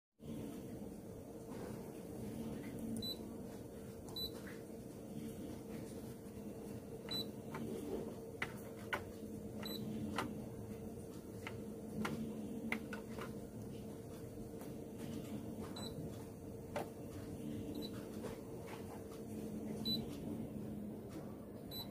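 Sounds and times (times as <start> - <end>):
machine hum: 0.2 - 21.9
copier panel beeps: 3.0 - 3.2, 4.2 - 4.4, 7.1 - 7.6, 9.6 - 10.4, 15.7 - 16.1, 17.7 - 18.0, 19.8 - 20.1, 21.7 - 21.9.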